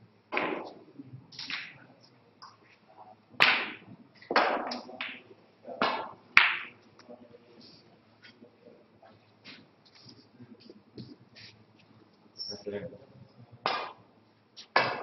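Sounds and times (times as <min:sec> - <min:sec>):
snooker balls clacking: 0:00.3 - 0:01.8, 0:03.4 - 0:06.8, 0:13.6 - 0:14.0, 0:14.7 - 0:15.0.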